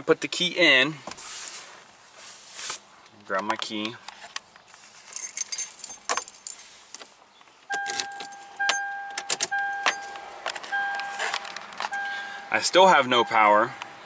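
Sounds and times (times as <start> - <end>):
car keys jingling: 5.0 - 6.7, 7.7 - 13.9
vehicle warning chime beeping: 7.7 - 14.0.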